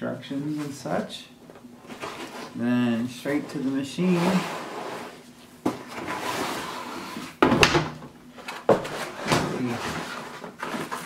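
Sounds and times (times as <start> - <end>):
cardboard packing scraping and rustling: 1.9 - 7.4, 8.6 - 11.0.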